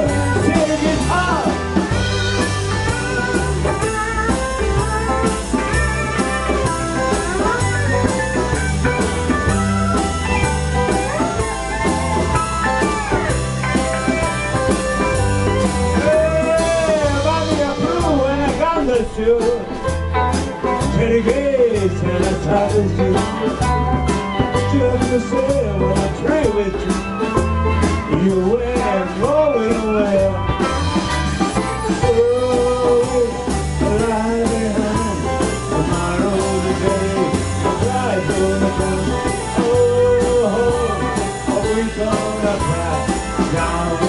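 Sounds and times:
drums and bass beat: 0.0 - 44.0
electric guitars: 0.0 - 44.0
sliding lead guitar line: 0.0 - 44.0.

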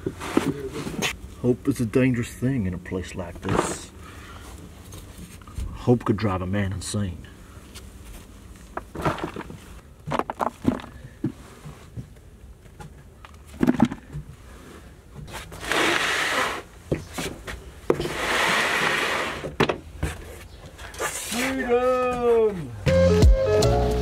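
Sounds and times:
knees and shoes dragging on plywood: 14.5 - 21.6.

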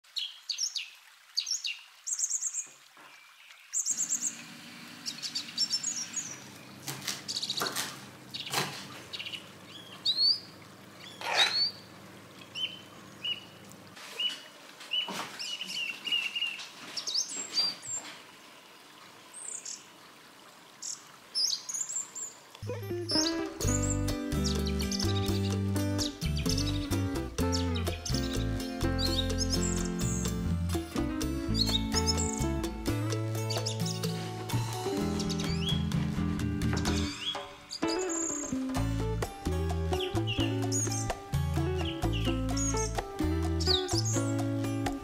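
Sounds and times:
birds chirping and whistling: 3.8 - 4.4, 5.0 - 7.7, 8.3 - 11.8, 12.6 - 13.6, 22.9 - 30.5, 31.5 - 32.6, 33.3 - 36.0, 36.6 - 38.7, 39.9 - 44.8.

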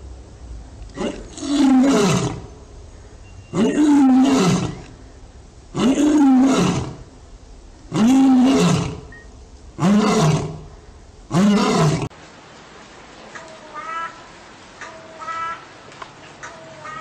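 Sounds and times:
lion roaring: 0.9 - 2.5, 3.5 - 4.9, 5.7 - 7.1, 7.9 - 9.1, 9.8 - 10.7, 11.3 - 12.1.

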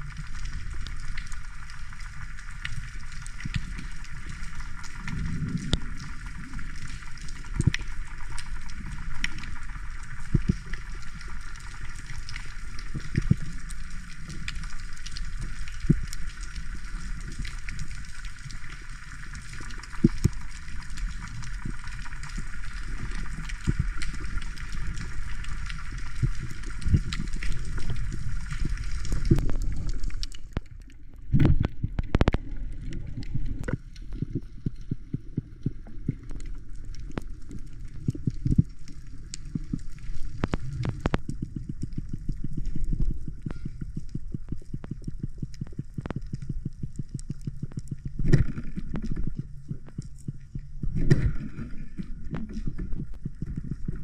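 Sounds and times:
sharp clicks underwater: 0.0 - 54.0
water sloshing and gurgling: 0.0 - 54.0.

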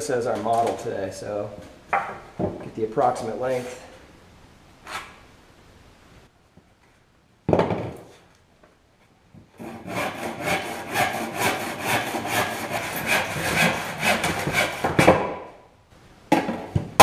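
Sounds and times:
handsaw cutting wood: 9.6 - 15.1.

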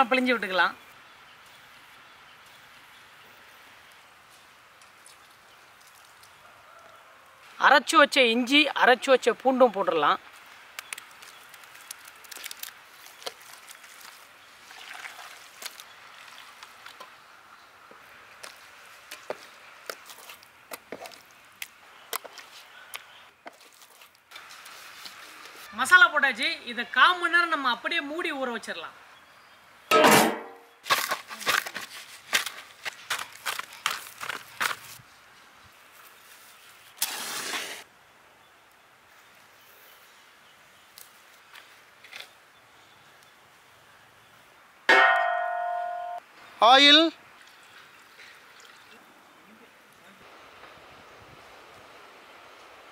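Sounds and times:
dry soil dumped on ground: 37.0 - 37.8.

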